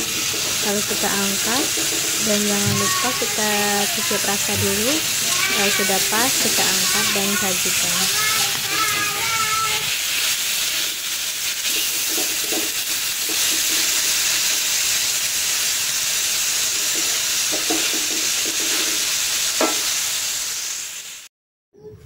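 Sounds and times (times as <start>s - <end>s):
food sizzling in a wok: 0.0s - 21.3s
spatula scraping a pan: 1.6s - 14.2s, 16.6s - 19.9s.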